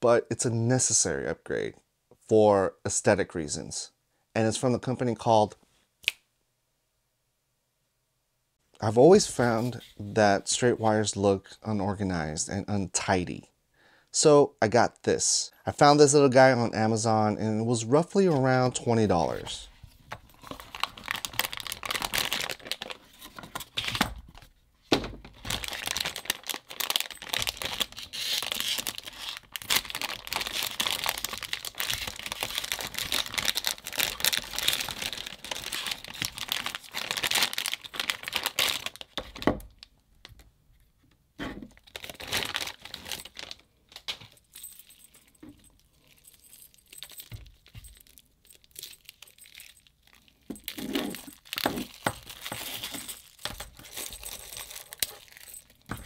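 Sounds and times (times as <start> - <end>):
cable clicking and rustling: 20.0 - 56.0
plastic bag crinkling and tearing: 20.3 - 24.5, 25.3 - 39.8, 41.8 - 44.2, 45.7 - 56.0.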